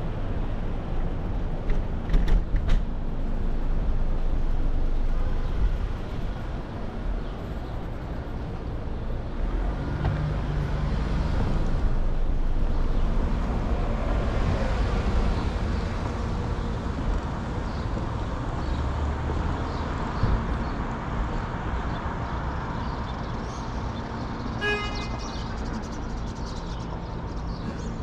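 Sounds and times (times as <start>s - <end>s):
city traffic noise: 0.0s - 28.0s.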